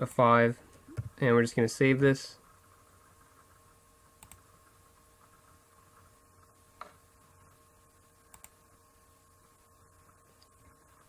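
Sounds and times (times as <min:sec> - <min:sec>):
room hum: 0:00.0 - 0:11.0
computer mouse clicks: 0:04.2 - 0:04.4, 0:08.3 - 0:08.6.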